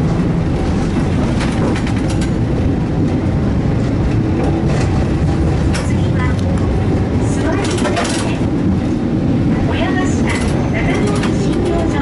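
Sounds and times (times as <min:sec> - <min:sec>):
streetcar motors and wheels rumbling: 0:00.0 - 0:12.0
sharp clicks and rattles: 0:01.2 - 0:02.4.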